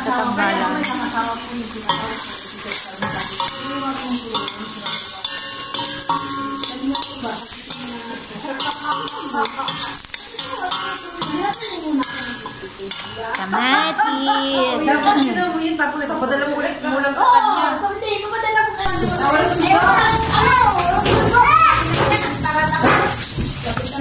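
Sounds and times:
vegetables sizzling in oil: 0:00.0 - 0:24.0
ladle scraping and clinking pot: 0:01.9 - 0:13.5.

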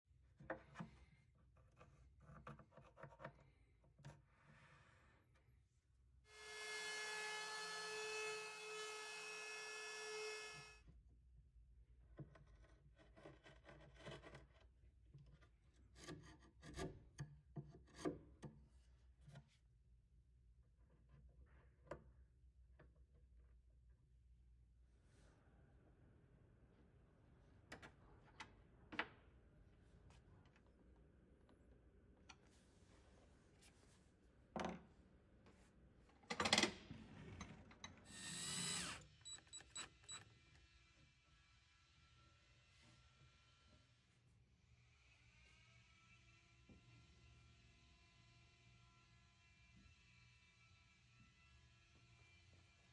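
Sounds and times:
chisel scraping wood: 0:12.3 - 0:14.6
cordless drill driving screws: 0:38.1 - 0:40.2.

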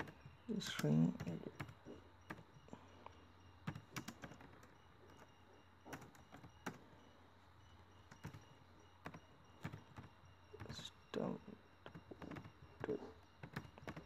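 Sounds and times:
keyboard keystrokes clicking: 0:03.6 - 0:05.3, 0:11.9 - 0:14.0.

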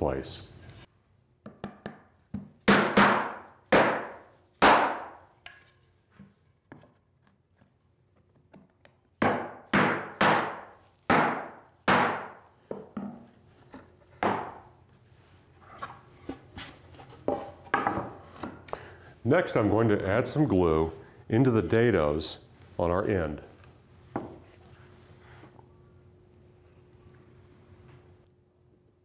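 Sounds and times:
mallet striking plywood: 0:01.4 - 0:05.2, 0:09.2 - 0:13.2.

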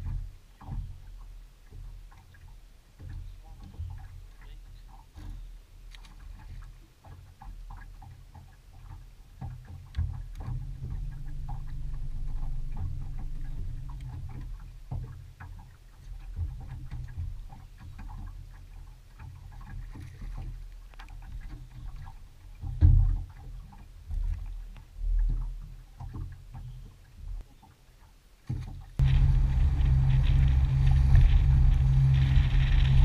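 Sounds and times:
clicks and taps from hull: 0:00.0 - 0:33.0
low rumble of water and wind: 0:00.0 - 0:33.0
electric trolling motor hum: 0:29.0 - 0:33.0.

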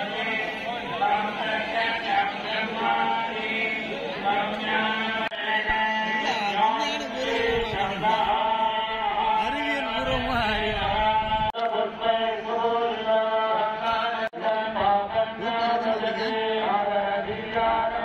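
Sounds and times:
voices chanting together: 0:00.0 - 0:18.0.

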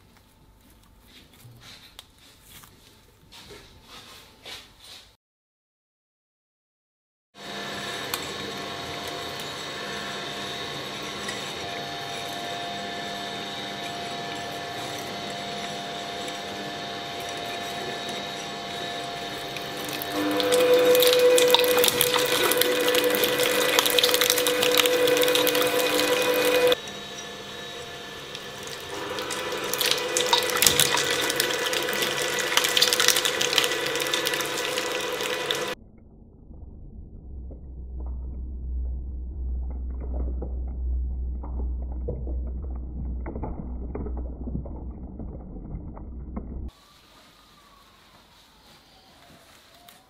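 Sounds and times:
shredder running: 0:07.4 - 0:35.8
crackling and squelching shredding: 0:16.0 - 0:26.8.

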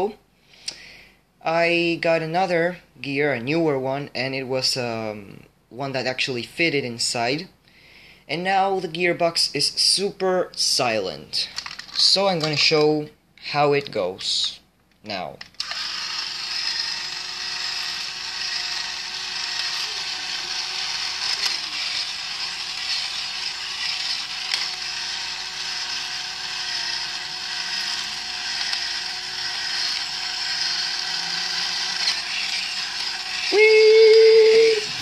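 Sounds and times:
toy robot motor whirring: 0:15.5 - 0:35.0.

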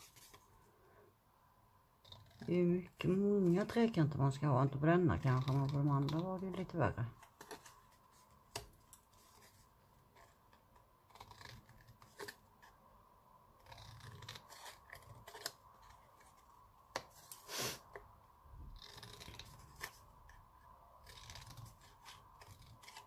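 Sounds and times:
scissors snipping cardstock: 0:05.2 - 0:07.8.

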